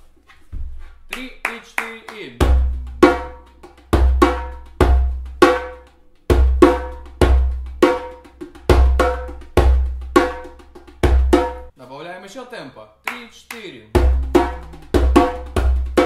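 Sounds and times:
djembe drumming: 0:02.4 - 0:11.7, 0:13.9 - 0:16.0.

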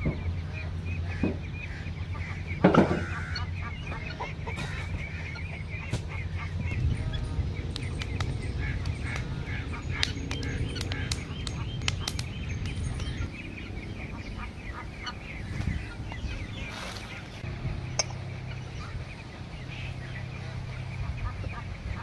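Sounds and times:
birds chirping: 0:00.0 - 0:22.0
low rumble: 0:00.0 - 0:22.0
wood fire crackling: 0:10.0 - 0:12.3.

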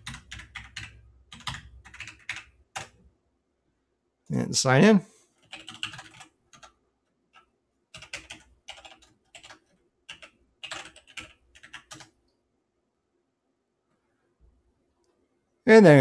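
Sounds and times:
typing on keyboard: 0:00.0 - 0:03.0, 0:05.4 - 0:12.2.

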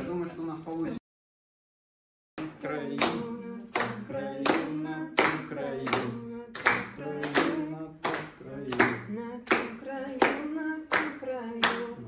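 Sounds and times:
a cappella singing: 0:02.4 - 0:12.0
hand claps: 0:02.9 - 0:12.0.

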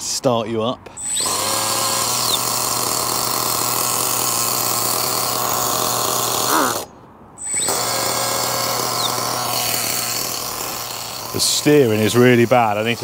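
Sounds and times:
small nitro engine idling: 0:07.4 - 0:13.0.

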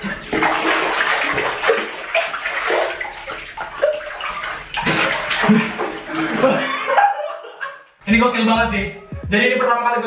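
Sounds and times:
liquid sloshing in a bathtub: 0:00.0 - 0:07.0.

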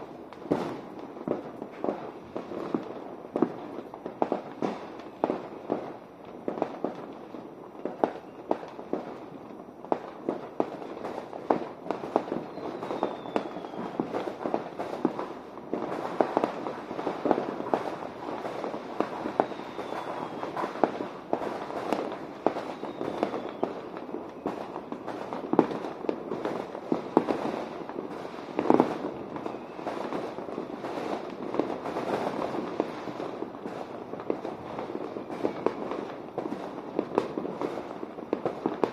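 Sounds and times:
fireworks bangs and crackles: 0:00.0 - 0:38.9
faint falling whistles: 0:12.4 - 0:14.2, 0:19.1 - 0:20.8, 0:22.5 - 0:24.7, 0:29.4 - 0:30.2, 0:35.0 - 0:35.9.

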